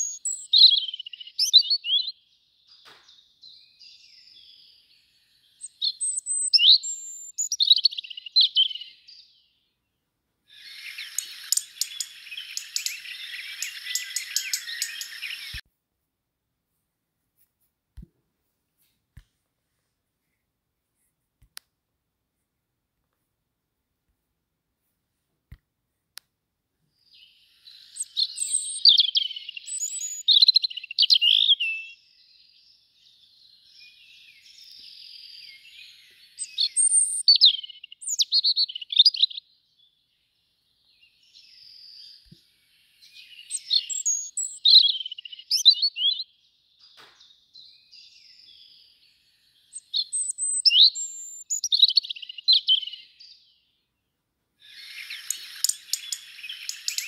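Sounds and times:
bird singing with trills: 0.0s - 9.5s, 10.5s - 15.6s, 27.1s - 53.7s, 54.6s - 57.0s.

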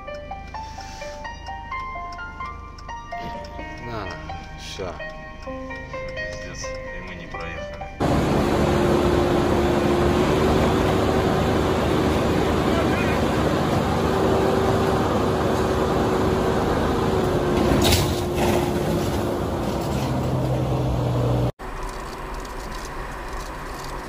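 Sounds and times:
engine hum: 0.0s - 24.0s
road noise from moving car: 0.0s - 24.0s
truck landing with crash: 17.4s - 20.4s
clatter of spilling cargo: 17.5s - 20.4s.

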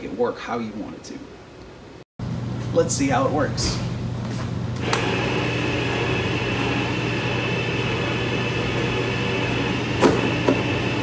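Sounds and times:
conveyor motor hum with whine: 2.2s - 11.0s.

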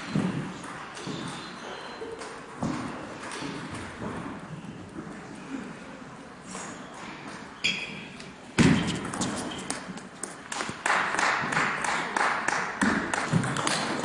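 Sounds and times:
people clapping: 9.7s - 14.0s.

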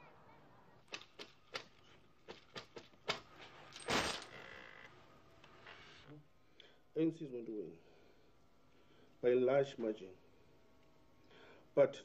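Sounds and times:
bones and shells clattering down: 2.5s - 4.4s.

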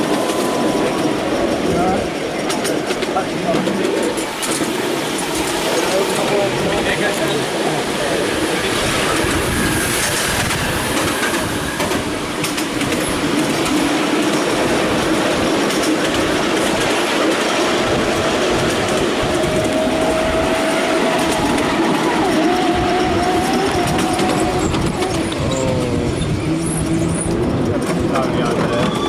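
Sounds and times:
train wheels rumbling on rails: 0.0s - 29.0s
wheel squeal: 19.4s - 27.5s, 28.1s - 29.0s.

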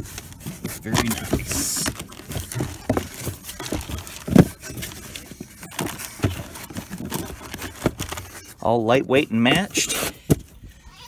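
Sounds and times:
cardboard box knocks and rustling: 0.5s - 8.2s.

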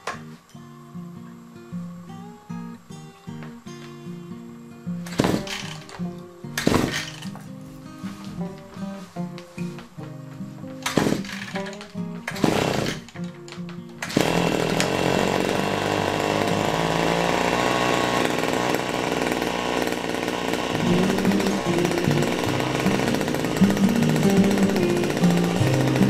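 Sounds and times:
brush cutter engine running: 5.0s - 6.0s, 6.6s - 7.2s, 10.8s - 13.2s, 14.0s - 26.0s
brush cutter pull start: 5.0s - 6.0s, 6.6s - 7.4s, 10.8s - 13.4s, 14.0s - 26.0s.

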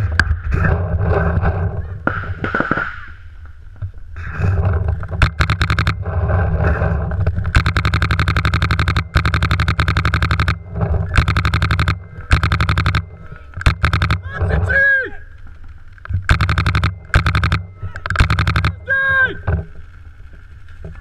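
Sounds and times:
paintball marker rapid firing: 2.1s - 3.0s, 5.2s - 6.1s, 7.6s - 14.4s, 16.3s - 18.8s.

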